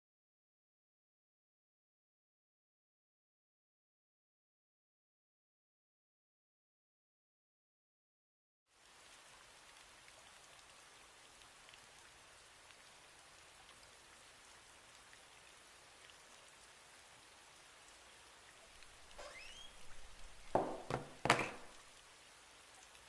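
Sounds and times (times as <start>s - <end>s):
soft rain hiss: 8.7s - 23.0s
brief rising squeak: 19.2s - 20.0s.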